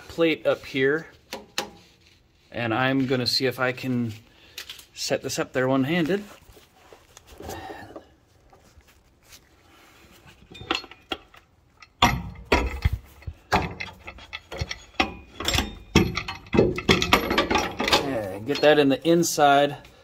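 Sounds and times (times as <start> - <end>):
metal hardware clinking and knocking: 10.4 - 19.0.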